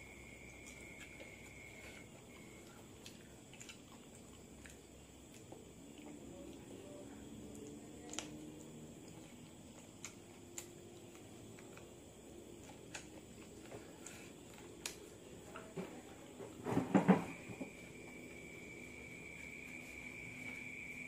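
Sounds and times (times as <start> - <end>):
wet mouth clicks from chewing: 2.4 - 6.2, 12.6 - 15.0
knocks and rustling: 15.7 - 17.7.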